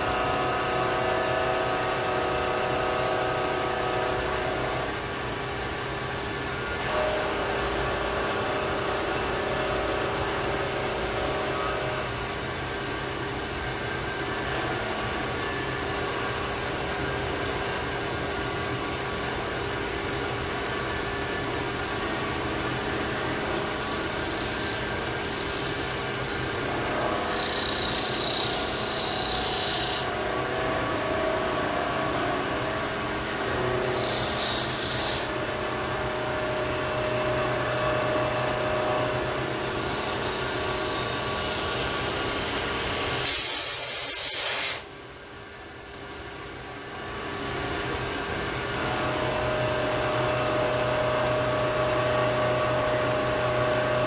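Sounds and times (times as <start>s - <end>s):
milling machine hum and whir: 0.0s - 54.0s
high-pitched cutting screech: 23.5s - 26.3s, 26.9s - 31.0s, 33.5s - 42.3s.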